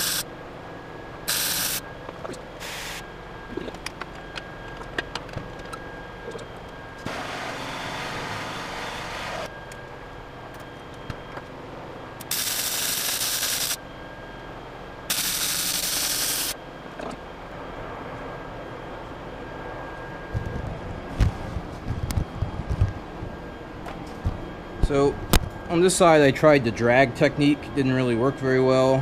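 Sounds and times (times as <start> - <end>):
welding arc crackling hiss: 0.0 - 0.3, 1.3 - 1.8, 2.6 - 3.1, 12.2 - 13.8, 15.1 - 16.6.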